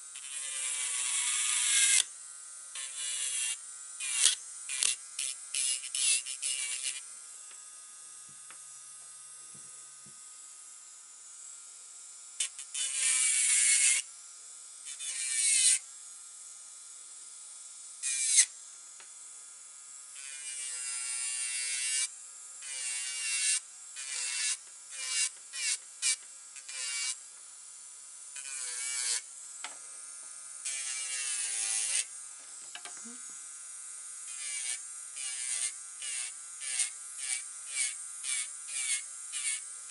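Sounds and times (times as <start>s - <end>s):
electric nail drill whining: 0.0s - 16.2s, 17.0s - 19.4s, 20.0s - 39.9s
sanding bit grinding nails: 0.2s - 2.1s, 2.8s - 7.0s, 34.3s - 39.9s.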